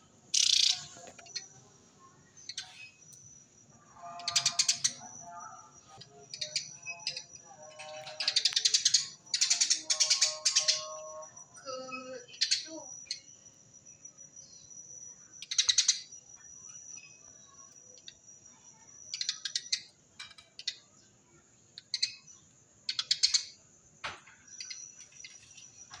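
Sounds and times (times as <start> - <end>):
sparrow rapid chirps: 0.3 - 1.5, 2.3 - 3.1, 4.0 - 5.2, 5.9 - 11.1, 11.7 - 13.4, 15.4 - 16.2, 19.1 - 20.0, 21.8 - 23.6.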